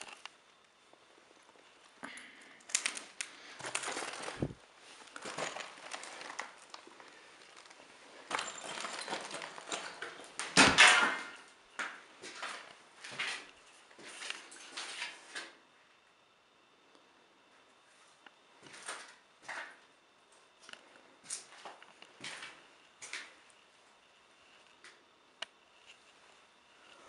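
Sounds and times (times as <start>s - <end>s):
footsteps crunching on rubble: 3.5s - 10.9s.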